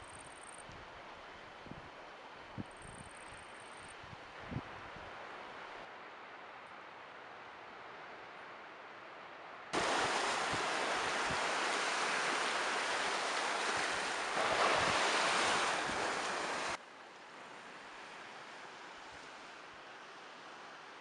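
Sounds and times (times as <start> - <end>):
faint wind hiss: 0.0 - 21.0
wind buffeting microphone: 9.8 - 16.8
waves washing onto beach: 9.8 - 21.0.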